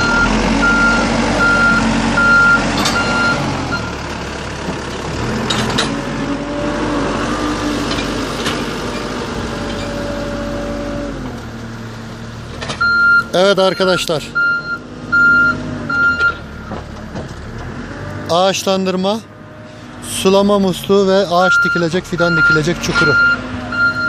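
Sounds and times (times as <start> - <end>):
reversing alarm beeping: 0.0 - 4.0, 12.8 - 16.4, 21.4 - 24.0
diesel engine running: 0.0 - 24.0
metallic clanks: 2.7 - 3.1, 5.4 - 6.0.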